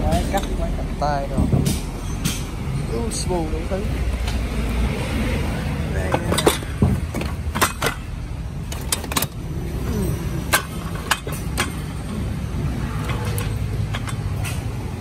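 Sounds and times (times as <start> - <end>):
metal tools knocking together: 0.0 - 0.7, 6.0 - 14.8.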